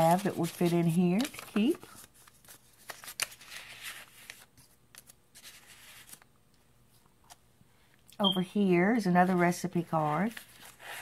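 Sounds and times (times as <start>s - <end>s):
paper and card rustling: 0.0s - 6.3s, 9.2s - 11.0s.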